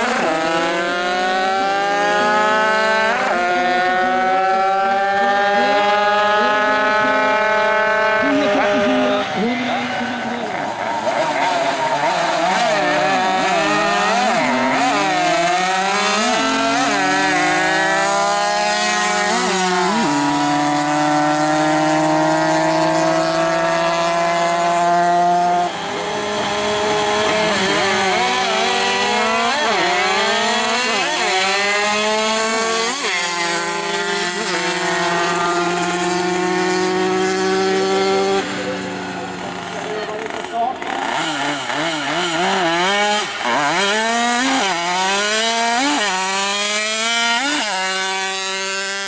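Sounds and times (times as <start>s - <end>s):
racing mopeds accelerating: 0.0s - 49.0s.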